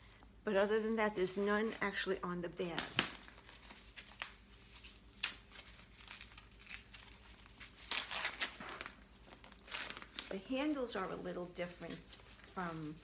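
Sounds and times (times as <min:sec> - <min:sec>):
plastic wrap crinkling and tearing: 0:02.8 - 0:13.0.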